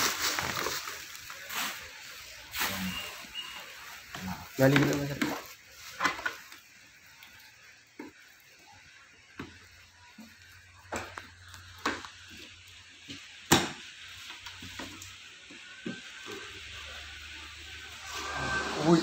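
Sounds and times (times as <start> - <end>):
packaging crinkling and rustling: 0.0 - 6.7.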